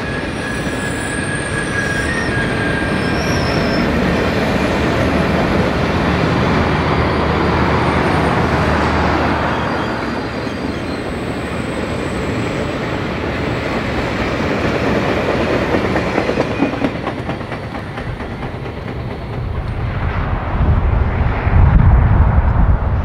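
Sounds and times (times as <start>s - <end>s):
train rolling past: 0.0s - 23.0s
train wheels clicking: 10.1s - 19.8s.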